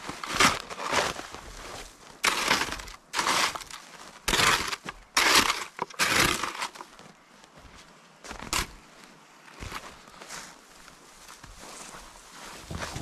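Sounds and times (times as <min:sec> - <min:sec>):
footsteps crunching in snow: 0:00.0 - 0:13.0.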